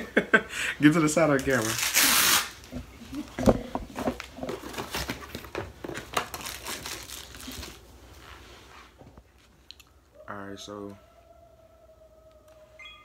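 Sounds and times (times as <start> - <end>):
packaging rustling and crinkling: 1.4 - 8.4.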